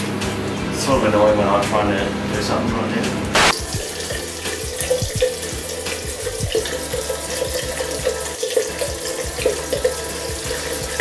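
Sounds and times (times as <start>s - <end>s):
tap running into sink: 3.5s - 11.0s
toothbrush scrubbing: 3.7s - 11.0s.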